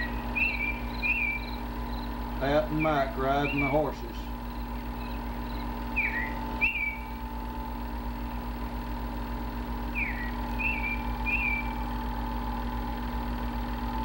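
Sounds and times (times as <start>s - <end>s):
two-part whistled call: 0.0s - 7.3s, 9.8s - 12.0s
steady low hum: 0.0s - 14.0s.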